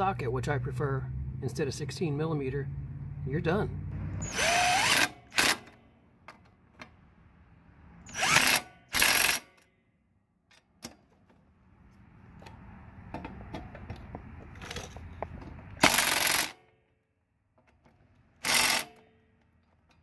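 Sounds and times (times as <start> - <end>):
impact driver bursts: 4.2 - 5.8, 8.1 - 9.6, 15.8 - 16.6, 18.4 - 19.0
tool clicking and rattling: 17.6 - 20.0.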